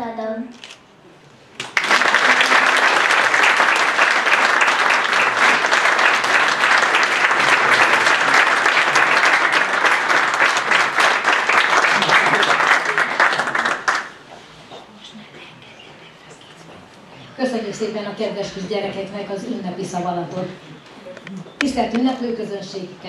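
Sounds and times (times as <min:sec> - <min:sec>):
audience applauding: 0:01.6 - 0:14.2.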